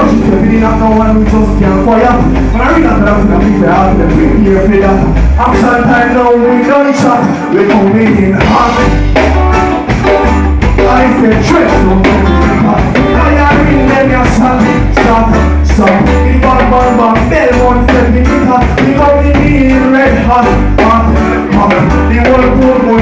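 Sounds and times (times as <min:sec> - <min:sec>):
live reggae band playing: 0:00.0 - 0:23.0
person singing: 0:00.0 - 0:23.0.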